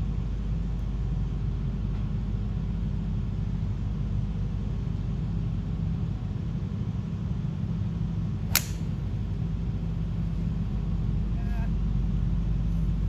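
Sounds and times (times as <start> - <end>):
golf club striking ball: 8.5 - 9.0.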